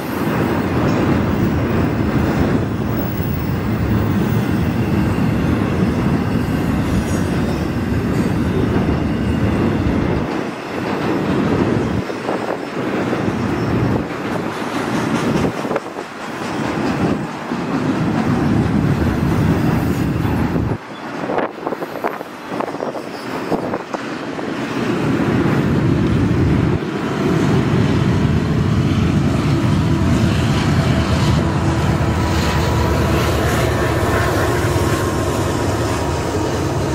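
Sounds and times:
diesel locomotives passing: 0:00.0 - 0:36.9
freight train rumbling on rails: 0:00.0 - 0:36.9.

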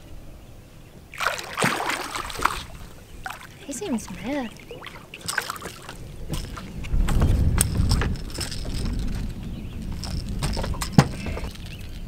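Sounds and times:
knocks and clatter on boat: 0:04.1 - 0:12.0
low rumble: 0:06.1 - 0:12.0.

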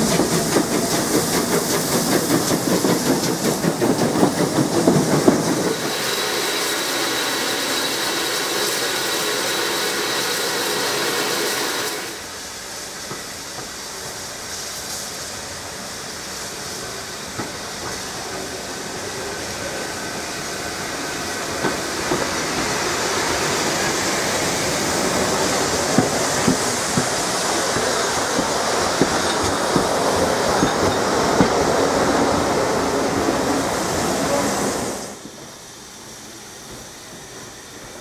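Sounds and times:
steam hissing: 0:00.0 - 0:38.0
steam train running past: 0:00.0 - 0:38.0
wheels clicking over rail joints: 0:25.5 - 0:31.7.

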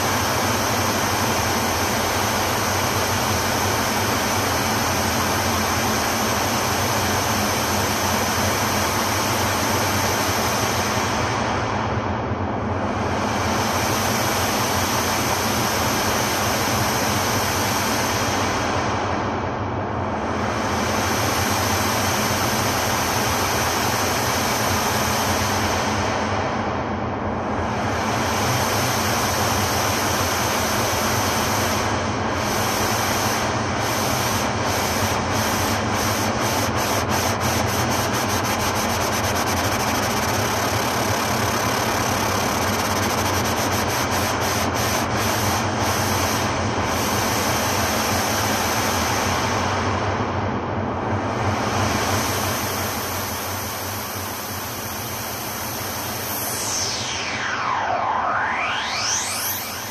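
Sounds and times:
low drone: 0:55.4 - 0:59.9
rushing noise texture: 0:55.6 - 0:59.9
ambient electronic music: 0:56.6 - 0:59.9.

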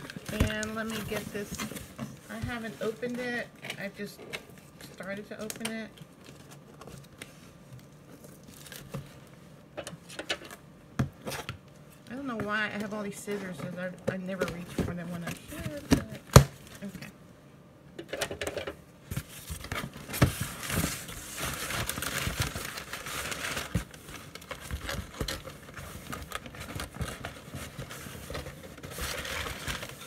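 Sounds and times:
cardboard rustling and scraping: 0:00.0 - 0:03.4, 0:12.2 - 0:16.2, 0:19.1 - 0:30.0.

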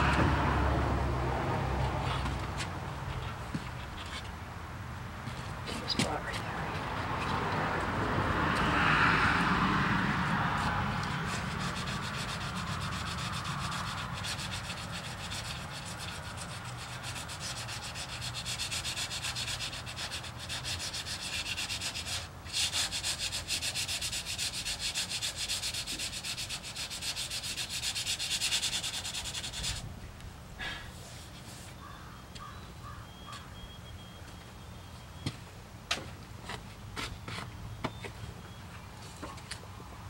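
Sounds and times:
sandpaper rubbing on metal: 0:11.1 - 0:29.8.

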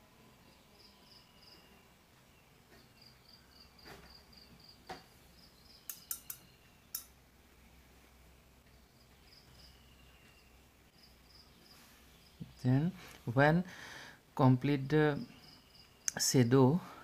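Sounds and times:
faint insect chirping: 0:00.0 - 0:07.2, 0:08.2 - 0:17.0
sharp clicks: 0:05.8 - 0:07.1.

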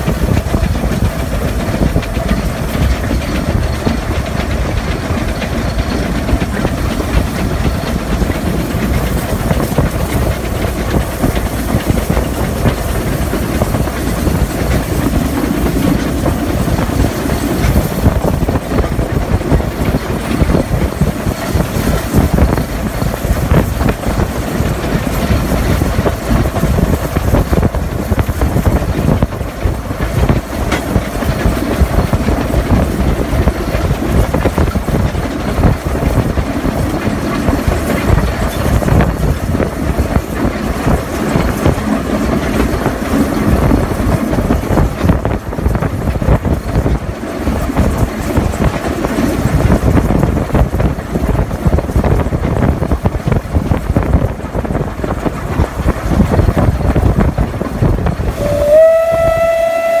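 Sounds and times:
steam locomotive running noise: 0:00.0 - 1:00.0
steam whistle: 0:58.3 - 1:00.0.

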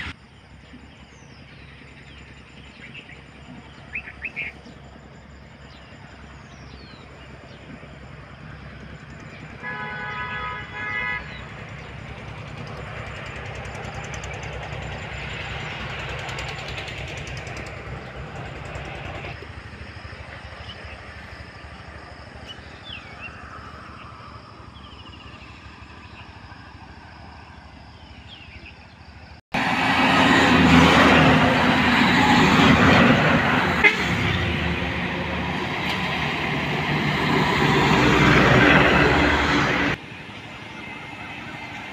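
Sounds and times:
road traffic passing: 0:00.0 - 0:41.9
vehicle horn: 0:09.6 - 0:11.6, 0:33.6 - 0:35.2.

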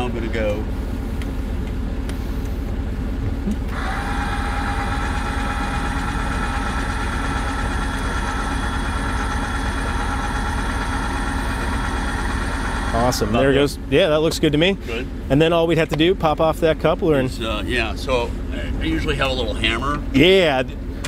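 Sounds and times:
electric jack motor whine: 0:03.5 - 0:13.7.

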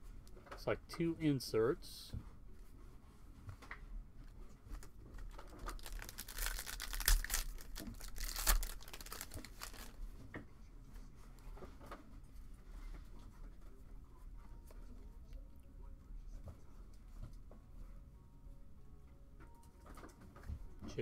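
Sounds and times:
cards rustling and clicking: 0:04.7 - 0:10.0
wrapper tearing and crinkling: 0:04.8 - 0:10.0.

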